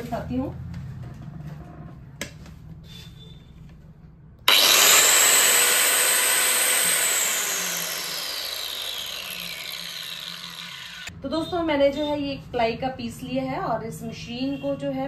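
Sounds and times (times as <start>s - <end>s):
circular saw whining: 4.5s - 11.1s.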